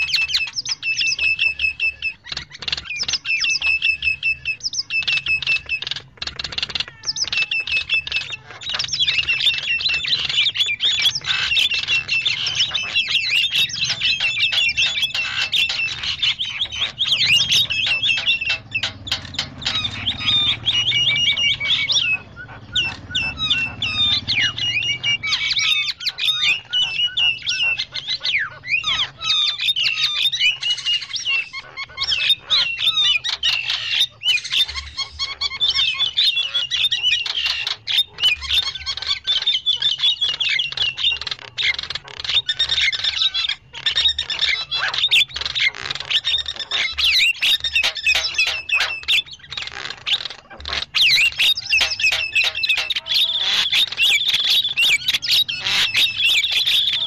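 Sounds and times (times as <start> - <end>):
mynas chattering noisily: 5.6 - 45.1.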